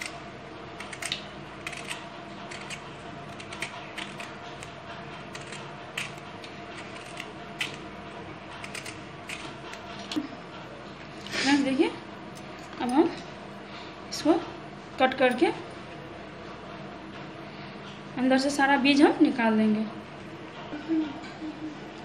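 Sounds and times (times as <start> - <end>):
peeler scraping vegetable skin: 0.8 - 7.9, 8.6 - 10.2.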